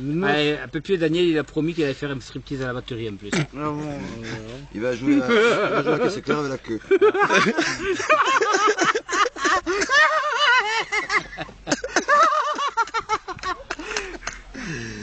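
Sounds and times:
man laughing: 0:04.0 - 0:14.8.

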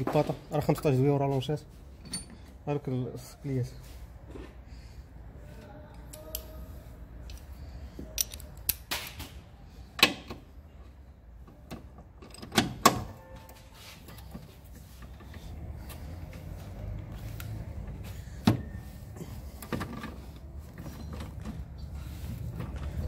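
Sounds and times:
metal tools clinking on engine parts: 0:01.9 - 0:02.6, 0:08.1 - 0:08.8, 0:19.2 - 0:23.0.

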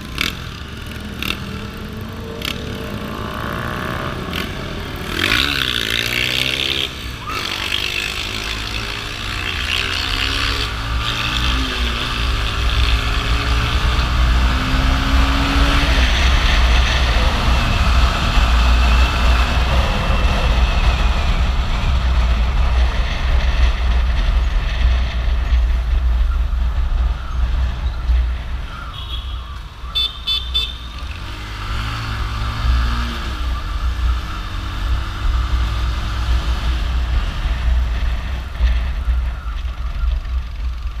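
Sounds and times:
motorcycle engine: 0:00.0 - 0:41.0
wind rumble on microphone: 0:11.6 - 0:28.9
vehicle horn beeping: 0:28.9 - 0:31.0.

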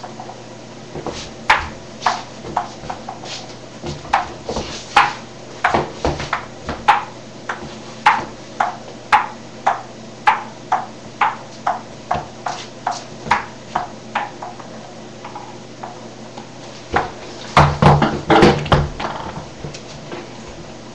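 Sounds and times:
table tennis ball bouncing: 0:01.5 - 0:03.2, 0:03.9 - 0:16.0, 0:16.9 - 0:19.5
loud knocks: 0:03.8 - 0:12.3, 0:16.9 - 0:19.5.

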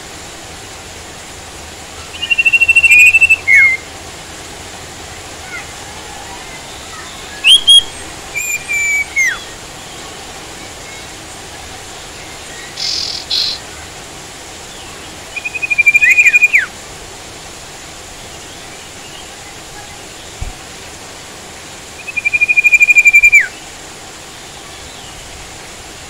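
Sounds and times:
rain hissing: 0:00.0 - 0:26.0
songbird calling: 0:01.9 - 0:03.9, 0:05.2 - 0:14.0, 0:14.7 - 0:16.8, 0:21.9 - 0:23.8.

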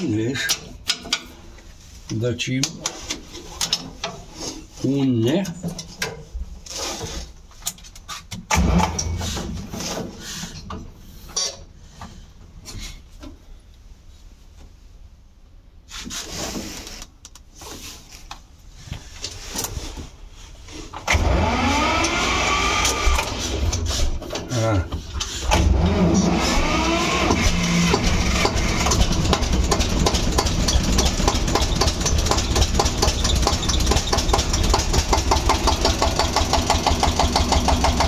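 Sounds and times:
starter cranking diesel engine: 0:08.5 - 0:09.6, 0:21.0 - 0:24.4, 0:25.2 - 0:38.0.

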